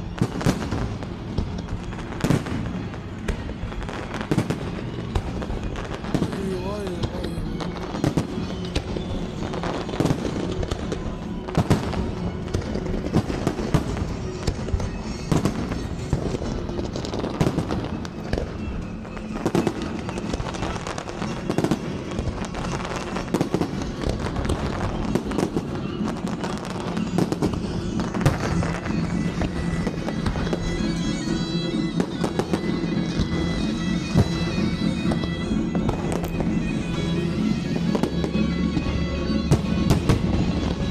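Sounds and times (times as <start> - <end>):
fireworks bangs and crackles: 0.0 - 40.9.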